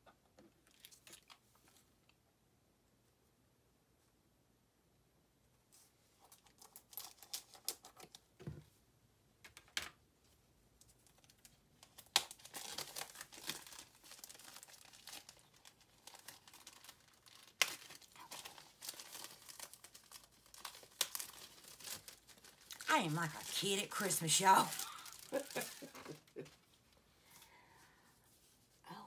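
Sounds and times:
packaging crinkling and tearing: 0:00.6 - 0:01.8, 0:06.2 - 0:08.2, 0:10.9 - 0:26.6.

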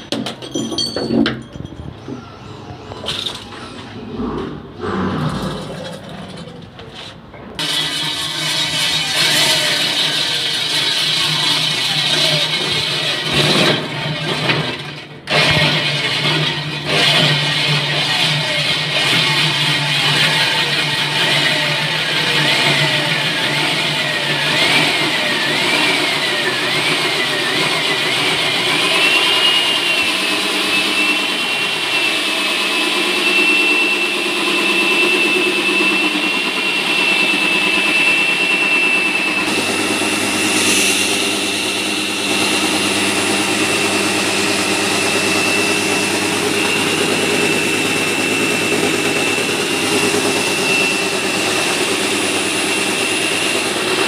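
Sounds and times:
lower hum: 0:02.5 - 0:07.5, 0:38.0 - 0:52.5
core drill motor whine: 0:07.6 - 0:54.0.

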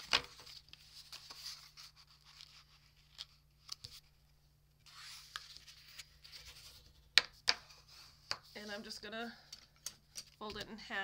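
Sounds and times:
paper handling: 0:00.0 - 0:04.2, 0:04.9 - 0:08.8.

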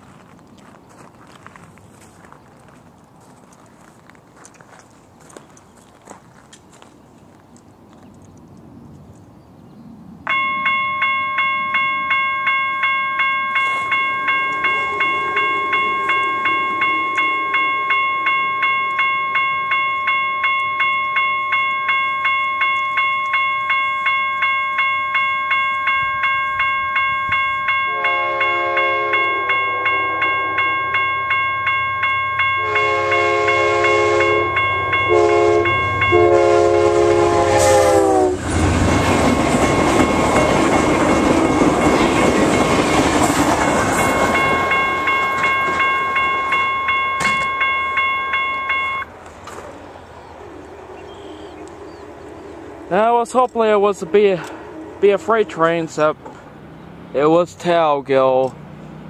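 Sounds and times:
train rumble: 0:00.0 - 0:59.0
level crossing warning bell: 0:10.3 - 0:49.2, 0:52.8 - 0:56.2
train horn: 0:13.7 - 0:19.3, 0:27.8 - 0:31.3, 0:32.5 - 0:38.5.

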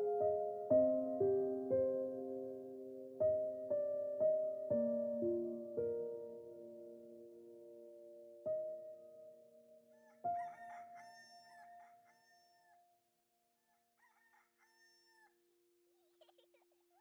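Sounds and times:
rooster crowing: 0:09.9 - 0:12.8, 0:13.6 - 0:15.4.

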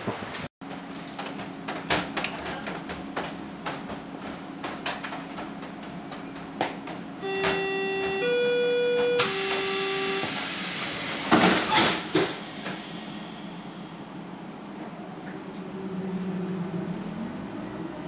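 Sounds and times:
train door warning chimes: 0:07.2 - 0:14.3
doors sliding shut with hiss: 0:09.2 - 0:13.9.

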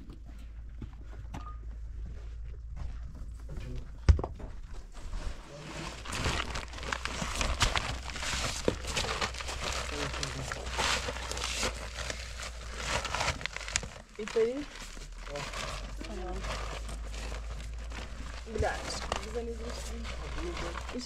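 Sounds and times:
sack crinkling and rustling: 0:04.7 - 0:21.0.

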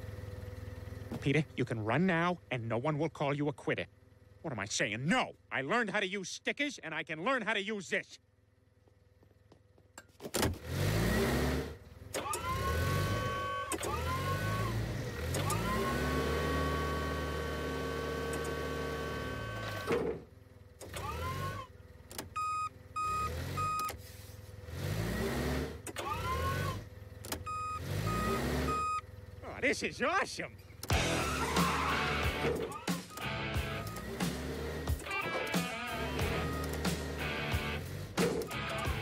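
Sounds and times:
forklift motor whirring: 0:10.3 - 0:29.5, 0:30.5 - 0:39.0
reversing beeps: 0:22.4 - 0:24.0, 0:27.5 - 0:29.0.

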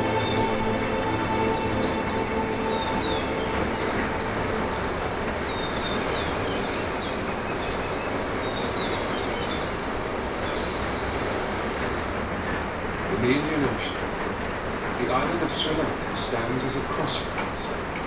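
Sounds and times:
birds chirping: 0:00.0 - 0:17.9
rain on a metal roof: 0:00.0 - 0:18.0
surf on tv: 0:00.0 - 0:18.0.

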